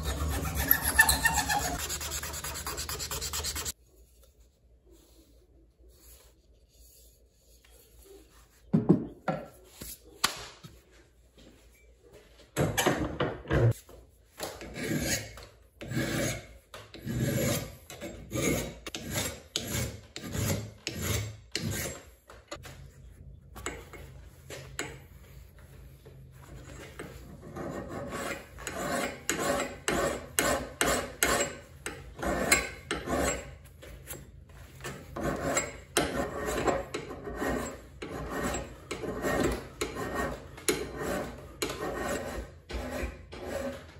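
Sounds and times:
file rasping on steel blade: 0.0s - 3.8s, 14.7s - 22.0s, 27.4s - 33.6s, 35.1s - 43.8s.

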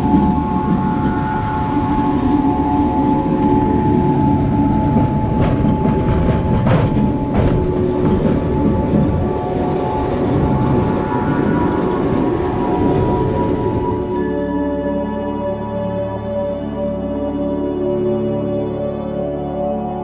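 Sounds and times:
steel wheels rumbling on track: 0.0s - 14.4s.

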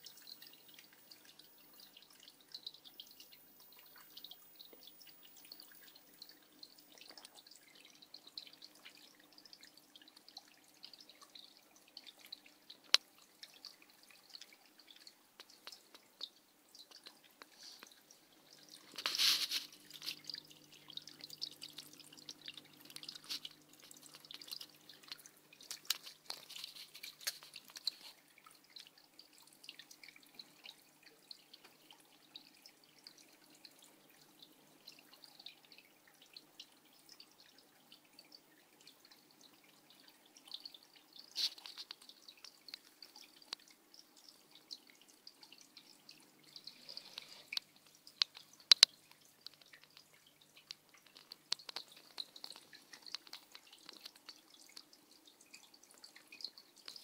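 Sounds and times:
faint low hum: 0.0s - 41.2s
water dripping and trickling: 0.0s - 57.0s.

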